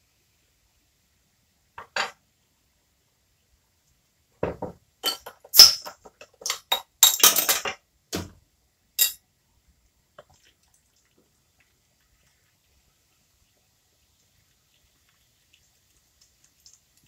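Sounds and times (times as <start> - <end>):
glass bottle clinking: 4.4 - 7.8, 9.0 - 9.2.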